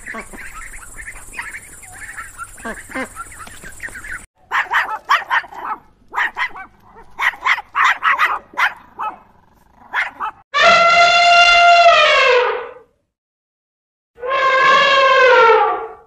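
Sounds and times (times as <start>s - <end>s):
ducklings peeping: 0.0s - 4.3s
dog barking: 4.4s - 10.4s.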